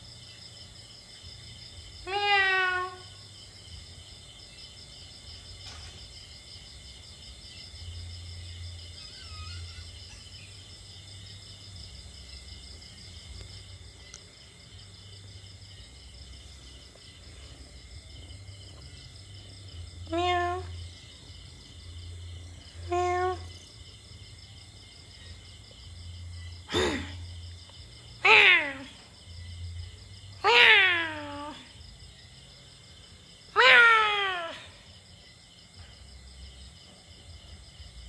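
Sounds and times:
insects trilling: 0.0 - 38.0
kitten mewing: 2.1 - 3.1, 20.0 - 20.7.

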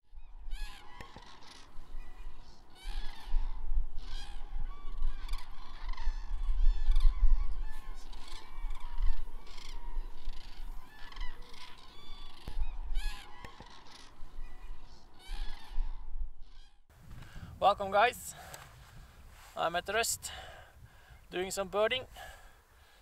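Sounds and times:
flock of birds calling: 0.3 - 16.8.

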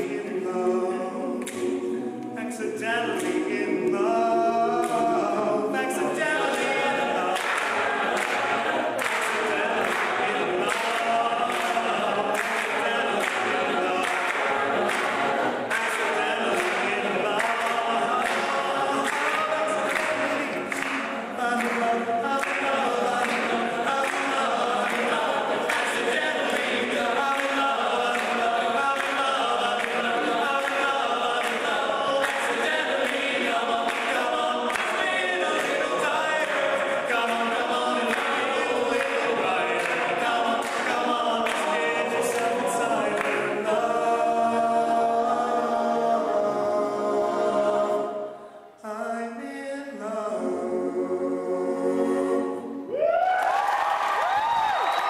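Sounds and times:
male a cappella group singing: 0.0 - 52.9.

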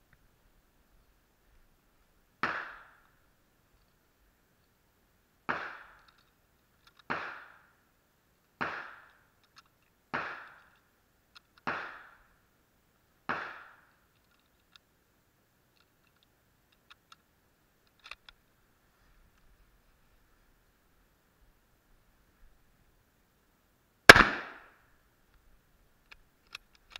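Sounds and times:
faint clicks: 8.4 - 11.7, 13.9 - 14.9, 15.7 - 18.4
gunshots with echo: 24.1 - 24.7.

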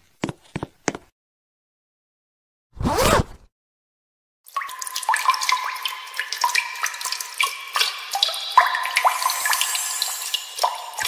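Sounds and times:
water dripping plinks: 4.5 - 11.0
running water hiss: 9.0 - 11.0.

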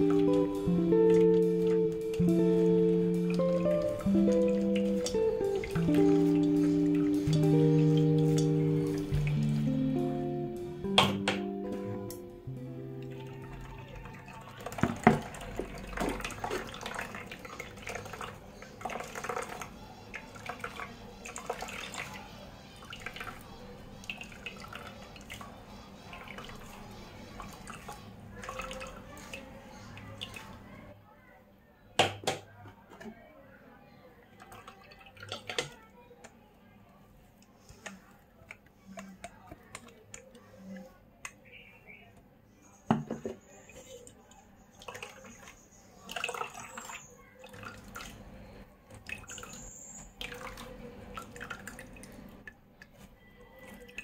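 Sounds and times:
liquid trickling into pot: 0.0 - 11.4, 12.0 - 30.8, 44.0 - 53.0
wet coconut squelching: 0.0 - 30.6.

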